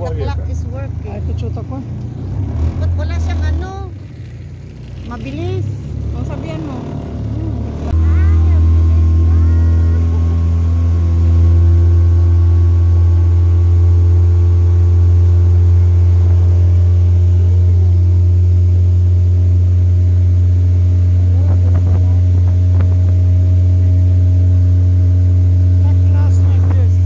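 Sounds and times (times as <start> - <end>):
motorboat engine droning: 0.0 - 27.0
water rushing off hull: 6.4 - 27.0.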